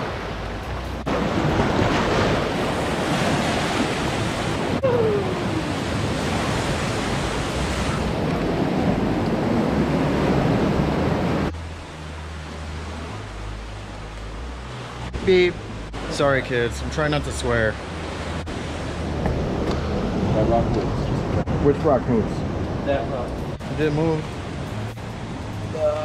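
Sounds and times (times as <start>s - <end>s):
waves breaking on rocks: 0.0s - 26.0s.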